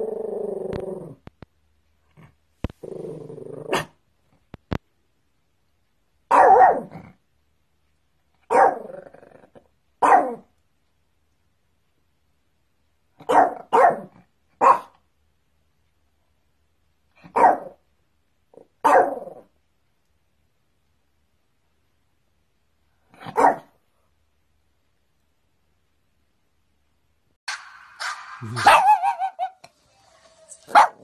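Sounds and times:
dog barking: 6.3 - 6.9, 8.5 - 8.9, 10.0 - 10.5, 13.2 - 15.0, 17.3 - 17.8, 18.8 - 19.4, 23.2 - 23.8, 28.6 - 29.5, 30.7 - 31.0.

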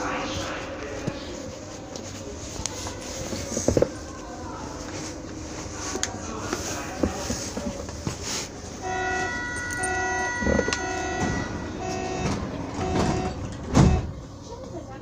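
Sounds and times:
train rumble: 0.0 - 15.0
high electrical tones: 8.8 - 13.4
low pulsing tone: 8.8 - 13.4.

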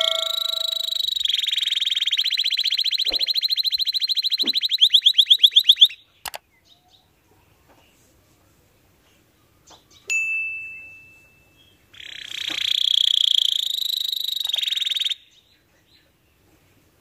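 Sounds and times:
clear ringing note: 0.0 - 1.0
canary trilling: 0.0 - 6.0, 11.9 - 15.2.

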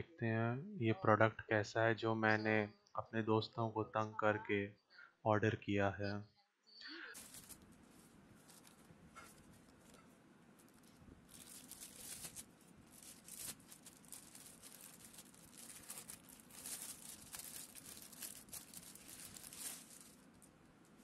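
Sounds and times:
plastic bag crinkling: 7.0 - 21.0.

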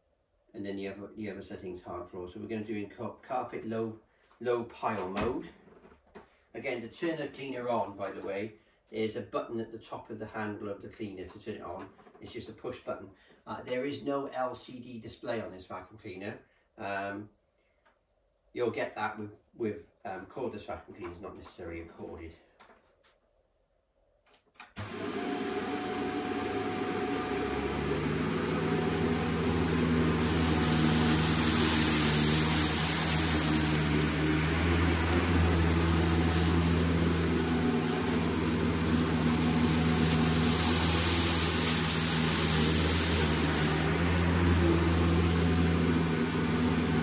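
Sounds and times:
upright vacuum cleaner running: 24.8 - 47.0.

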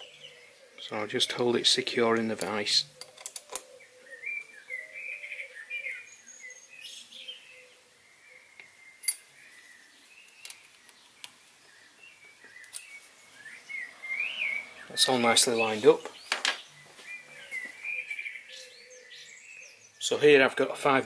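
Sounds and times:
birds chirping faintly: 0.0 - 21.0.

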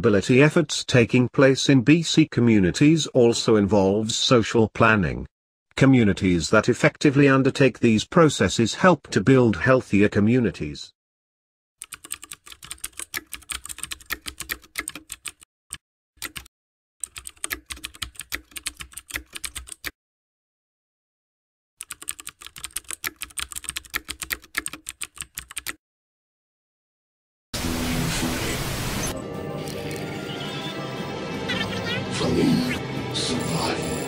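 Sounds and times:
rapid keyboard typing: 11.8 - 15.5, 16.2 - 20.0, 21.8 - 25.8.

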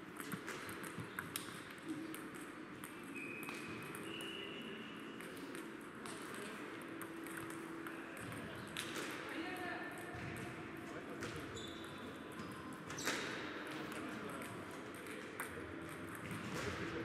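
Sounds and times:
table tennis balls clicking: 0.1 - 4.4, 5.1 - 9.2, 11.3 - 16.8.

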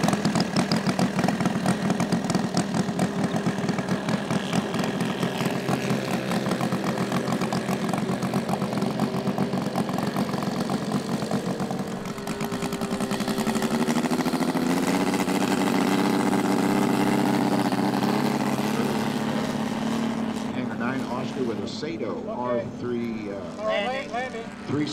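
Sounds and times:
model radial engine running: 0.0 - 24.9.

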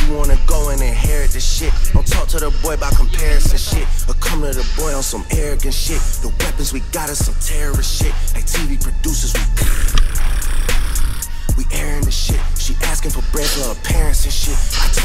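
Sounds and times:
rapping over a beat: 0.0 - 15.0.

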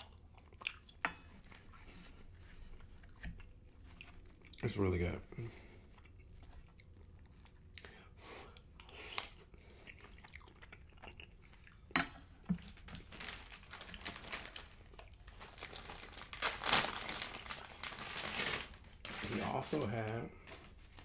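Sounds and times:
chewing soft food: 0.0 - 11.9
plastic packet crinkling: 12.6 - 21.0.

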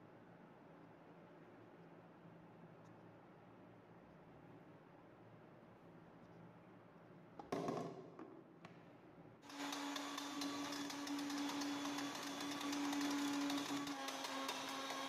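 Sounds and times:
mixer grinder motor humming: 9.5 - 15.0.

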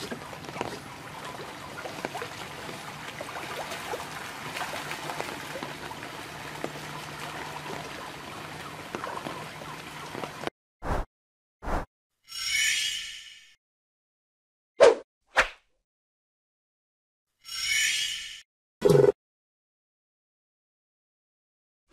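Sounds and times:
fish splashing in water: 0.0 - 10.4.

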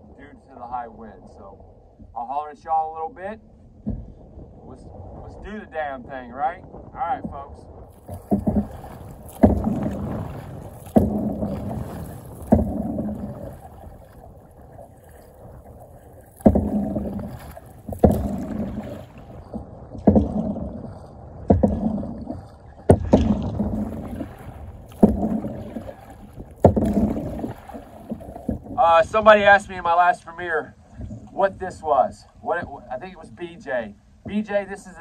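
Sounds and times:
paddle splashing through water: 7.3 - 34.6.

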